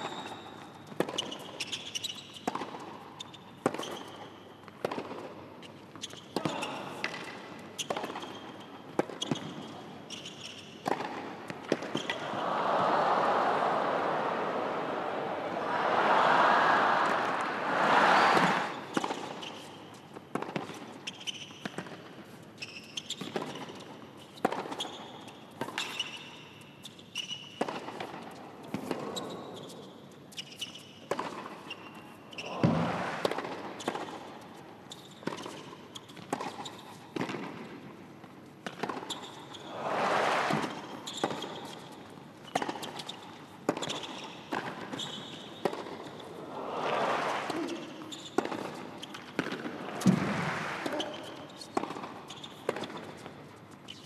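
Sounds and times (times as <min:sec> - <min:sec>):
crowd applause: 0:12.2 - 0:18.8, 0:32.5 - 0:33.4, 0:39.7 - 0:40.9, 0:46.4 - 0:47.9, 0:49.7 - 0:51.3
tennis ball struck by racquets: 0:32.4 - 0:34.2, 0:45.6 - 0:53.2.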